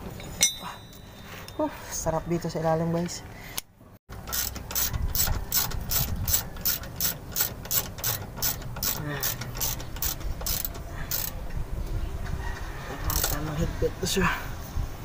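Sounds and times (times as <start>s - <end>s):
ratchet wrench clicking: 4.2s - 11.4s, 13.1s - 13.4s.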